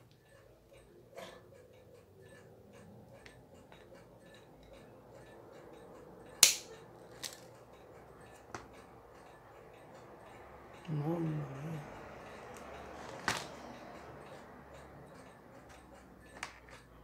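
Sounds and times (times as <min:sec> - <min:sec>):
sharp metallic snap: 0:06.4 - 0:07.4
small metallic clicks and scrapes: 0:06.7 - 0:09.4, 0:12.6 - 0:17.0.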